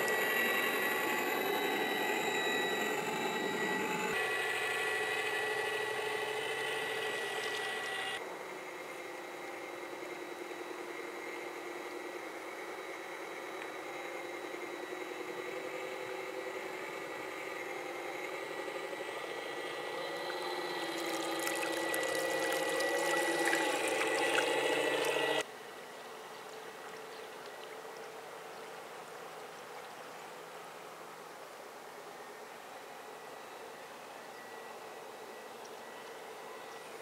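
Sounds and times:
electric motor whining: 0.0s - 8.2s, 9.0s - 25.5s
water: 20.3s - 33.8s, 34.8s - 37.0s
water splashing: 21.0s - 25.3s.

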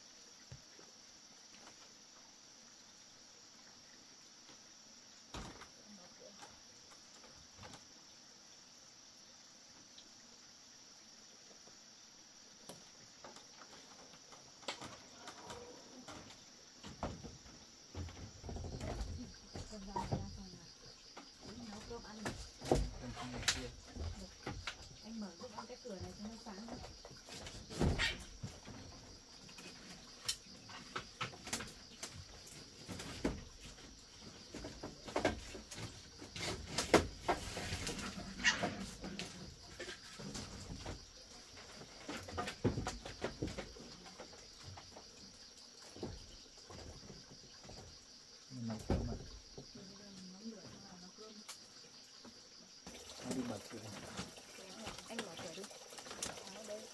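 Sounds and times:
crickets chirring: 0.0s - 56.9s
light knocks and clatters: 12.7s - 48.1s.

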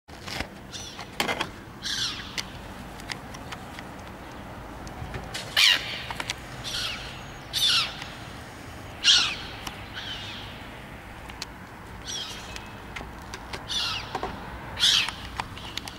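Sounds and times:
gulls calling: 0.7s - 2.7s, 5.4s - 10.8s, 12.0s - 15.9s.

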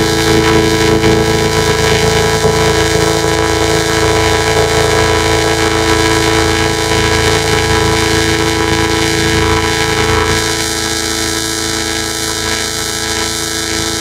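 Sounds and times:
distorted horn-like drone: 0.0s - 14.0s
fast buzzing bass pulse: 0.0s - 14.0s.

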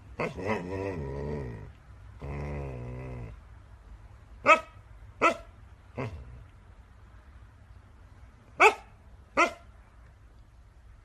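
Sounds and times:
puppy barking: 4.4s - 5.5s, 8.6s - 9.7s.

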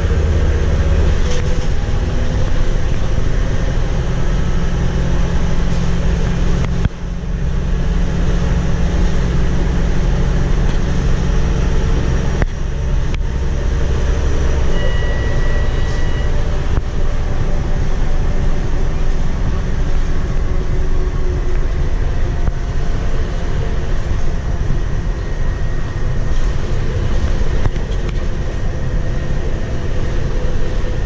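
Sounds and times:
bus diesel engine running: 0.0s - 31.0s
road and tyre noise: 0.0s - 31.0s
high steady beep: 14.6s - 16.5s.

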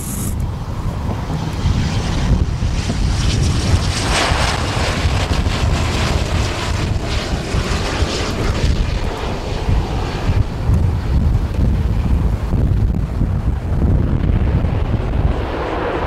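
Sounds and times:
jet engines passing: 0.0s - 16.0s
wind rumble on microphone: 0.0s - 16.0s.

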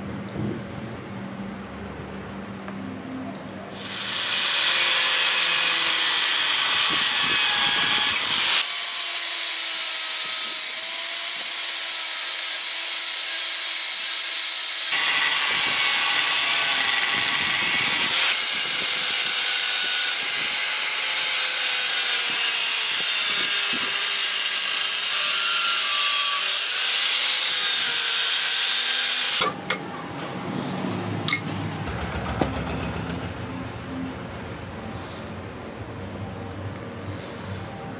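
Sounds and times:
power tool grinding steel: 3.8s - 29.8s.

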